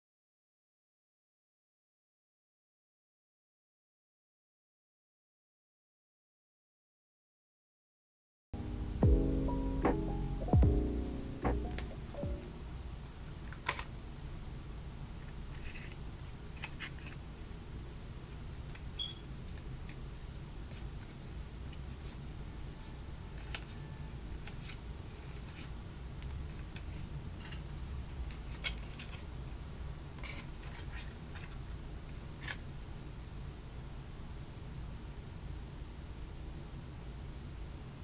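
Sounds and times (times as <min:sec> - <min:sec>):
low hum: 0:08.6 - 0:13.1
cardboard and paper rustling: 0:30.2 - 0:31.6.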